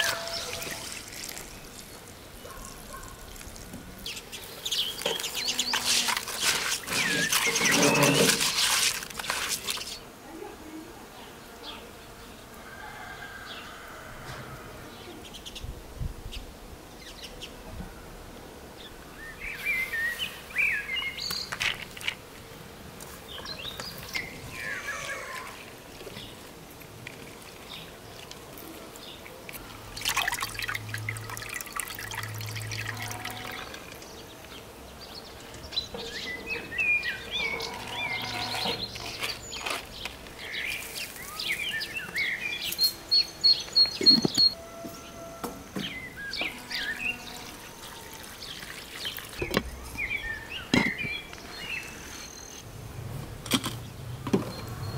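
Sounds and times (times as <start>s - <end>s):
birds chirping: 0.0s - 8.6s, 18.8s - 22.1s, 23.2s - 26.5s, 29.0s - 52.7s
water pouring and splashing: 0.0s - 10.0s, 25.8s - 34.6s, 47.3s - 50.1s.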